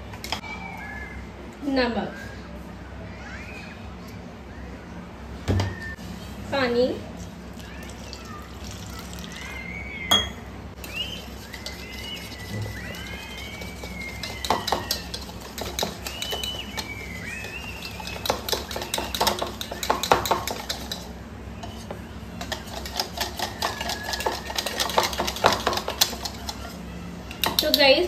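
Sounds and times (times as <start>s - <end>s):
whisk beating batter in bowl: 10.8s - 28.0s.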